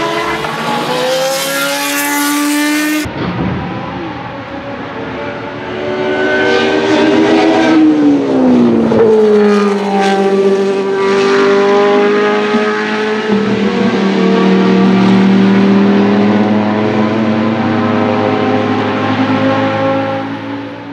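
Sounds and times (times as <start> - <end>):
racing car engine passing: 0.0 - 20.9.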